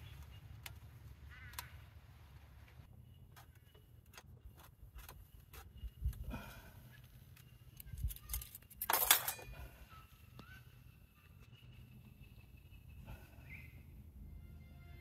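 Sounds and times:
small objects clicking and clinking: 7.3 - 9.5.

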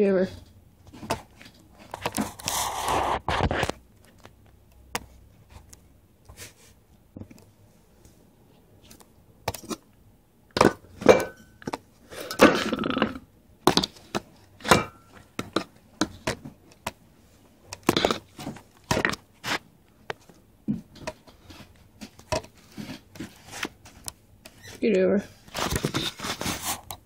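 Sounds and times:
rustling: 14.0 - 27.0
thumps and knocks: 17.7 - 24.6.

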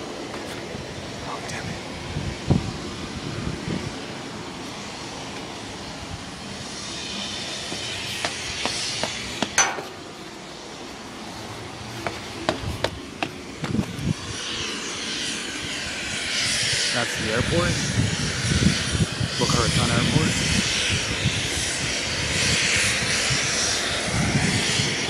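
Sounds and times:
aircraft engine: 0.0 - 25.0
traffic drone: 0.0 - 25.0.

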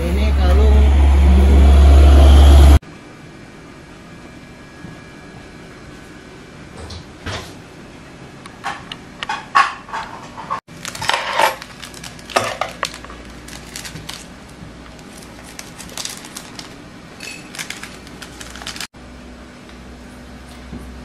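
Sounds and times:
low hum: 0.0 - 6.7
dishes and utensils clattering: 8.6 - 11.7.

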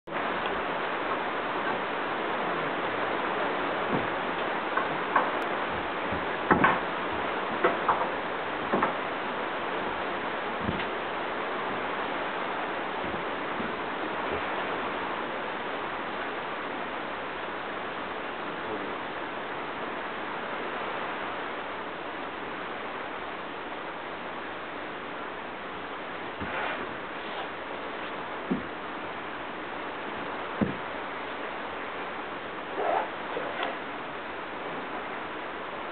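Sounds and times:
rain hissing: 0.1 - 35.9
rustle: 0.1 - 35.9
short thump: 30.6 - 30.8.

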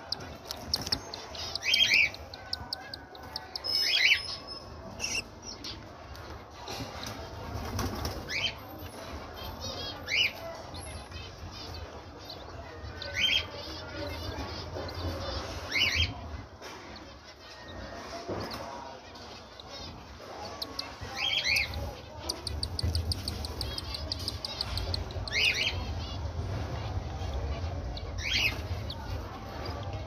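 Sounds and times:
rapid chirps: 0.0 - 5.3, 19.3 - 26.0
chicks begging cries: 0.0 - 6.3, 9.5 - 30.0.

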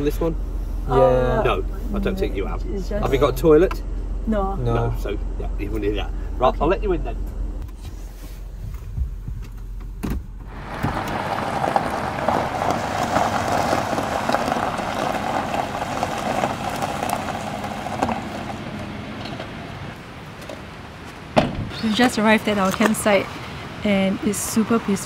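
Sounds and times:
van engine running: 0.0 - 20.0.

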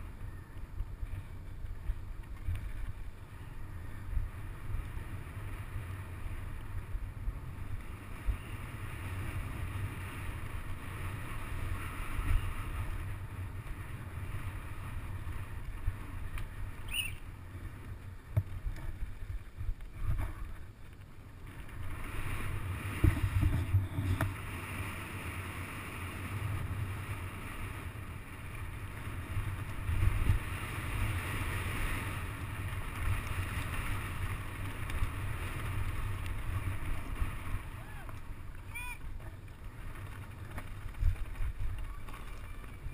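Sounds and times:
bike tyre noise: 0.0 - 42.9
wind rushing over microphone: 0.0 - 42.9
bike knocks and rattles: 18.3 - 21.2, 22.9 - 24.4.

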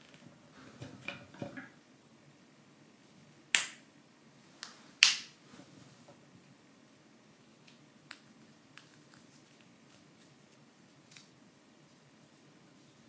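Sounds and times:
sharp wooden snaps: 3.6 - 3.8, 5.0 - 5.4.

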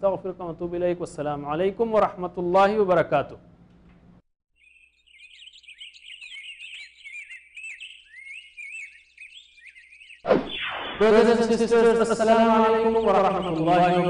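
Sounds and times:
bird chirping and trilling: 4.5 - 14.0
sweep falling in pitch: 10.2 - 11.8.

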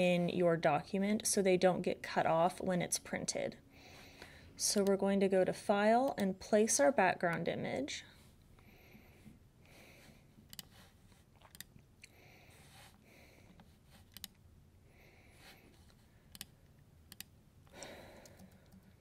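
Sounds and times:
computer mouse clicks: 10.5 - 10.8, 11.4 - 11.8, 13.6 - 14.4, 15.9 - 19.0.

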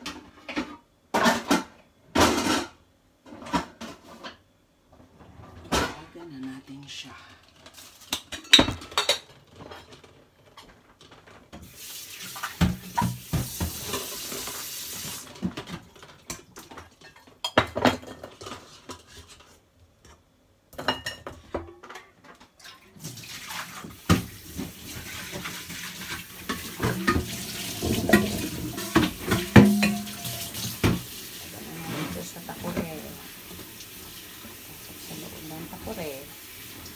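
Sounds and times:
steel pot clanking in sink: 26.1 - 31.1
tap running into steel sink: 26.5 - 31.1.

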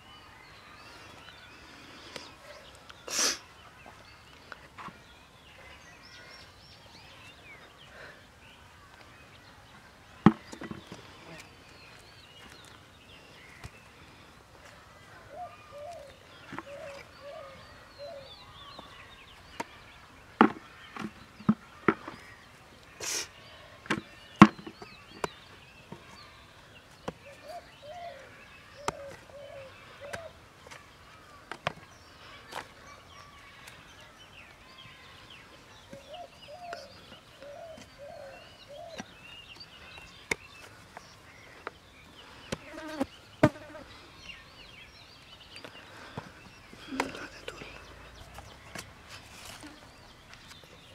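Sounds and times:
low cooing bird: 15.3 - 18.5, 27.2 - 30.4, 35.9 - 39.2.

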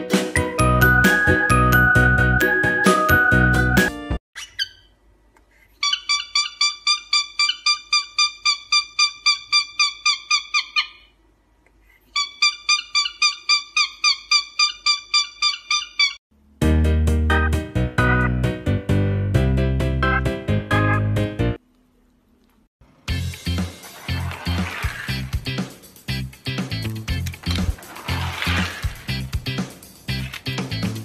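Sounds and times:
background music: 0.0 - 4.2, 16.6 - 21.6, 23.1 - 31.0
cockatiel chirping: 5.8 - 11.1, 12.2 - 16.2.

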